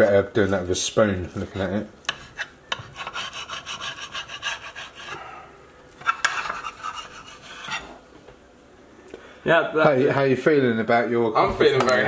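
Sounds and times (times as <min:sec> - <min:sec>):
knife scraping across plate: 0:01.4 - 0:05.2, 0:06.0 - 0:08.0.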